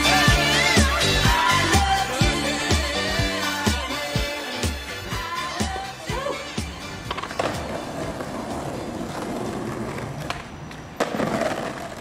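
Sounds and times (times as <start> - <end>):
skateboard wheels rolling on pavement: 6.6 - 12.0
skateboard clacks: 7.0 - 12.0
skateboard trucks grinding on stone: 7.0 - 12.0.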